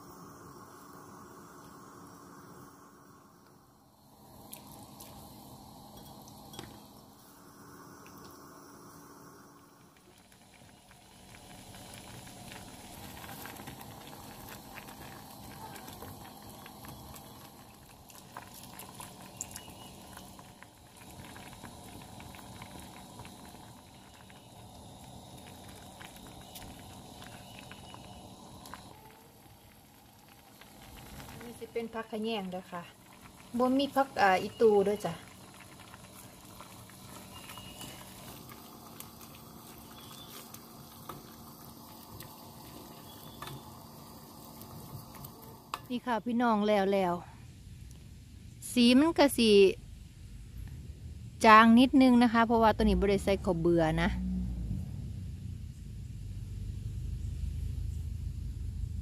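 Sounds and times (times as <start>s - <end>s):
soup boiling and bubbling: 0.0s - 55.3s
wooden spatula stirring: 34.9s - 43.7s.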